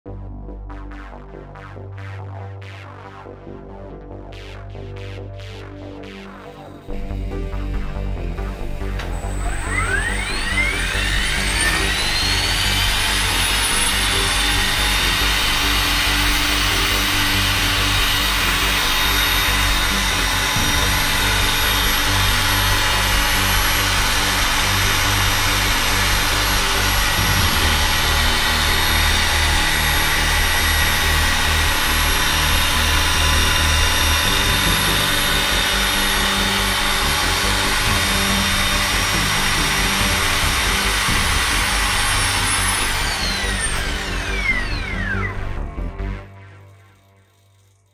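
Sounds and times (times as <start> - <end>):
model helicopter motor whine: 6.3 - 47.9.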